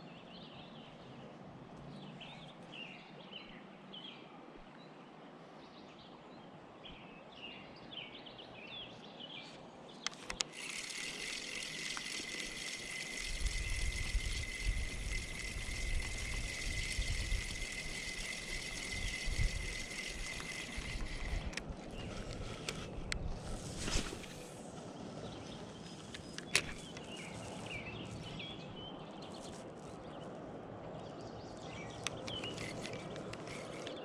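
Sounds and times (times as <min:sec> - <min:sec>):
reel clicks: 0:10.0 - 0:24.6, 0:25.6 - 0:28.6, 0:31.6 - 0:34.0
fishing reel whirring: 0:10.1 - 0:24.6, 0:25.7 - 0:28.6, 0:31.9 - 0:34.0.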